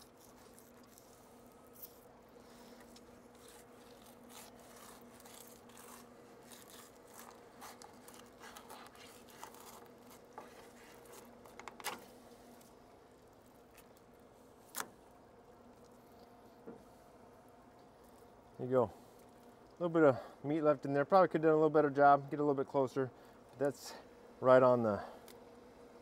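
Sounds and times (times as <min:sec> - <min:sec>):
knife crunching through fish bones: 0:00.0 - 0:02.1, 0:02.8 - 0:12.0.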